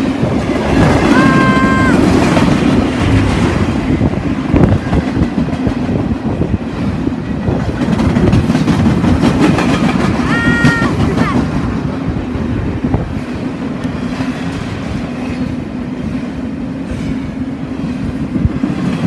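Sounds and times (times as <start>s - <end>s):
wheels clacking over rail joints: 0.0s - 12.1s
freight train rumble: 0.0s - 19.0s.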